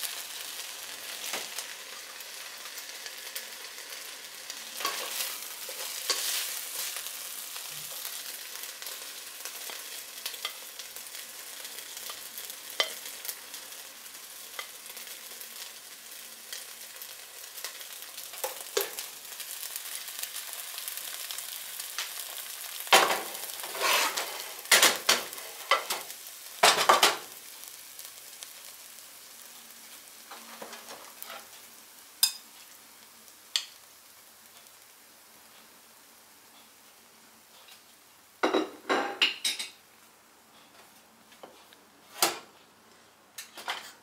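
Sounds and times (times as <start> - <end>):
rice sizzling in a pot: 0.0 - 40.3
spatula scraping a pot: 4.8 - 7.0, 23.6 - 24.5, 31.2 - 31.5.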